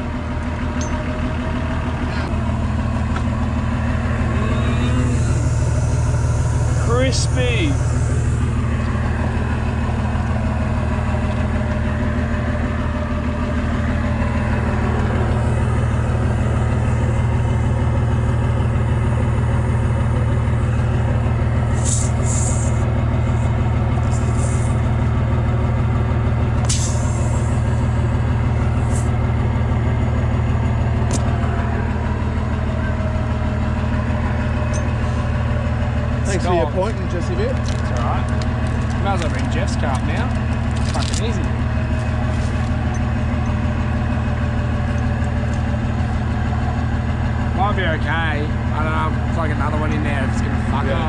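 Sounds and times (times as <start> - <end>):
vehicle engine idling: 0.0 - 51.0
short air hisses: 21.7 - 22.8, 24.0 - 24.8, 26.6 - 27.6.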